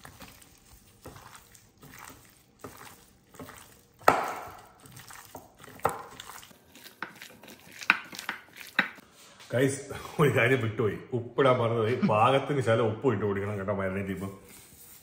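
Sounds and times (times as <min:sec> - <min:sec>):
wet squelching of mixing chicken: 0:00.0 - 0:09.1.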